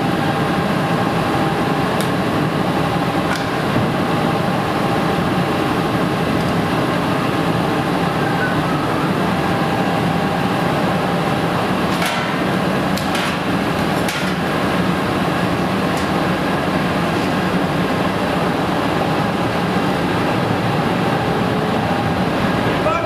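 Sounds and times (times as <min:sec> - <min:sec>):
industrial machinery running: 0:00.0 - 0:23.0.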